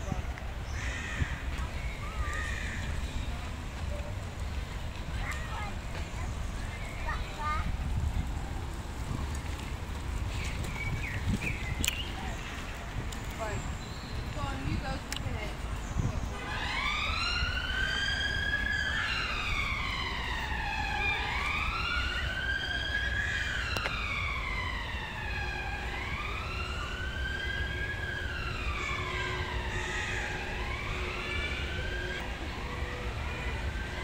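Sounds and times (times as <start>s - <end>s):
emergency siren wailing: 16.3s - 34.0s.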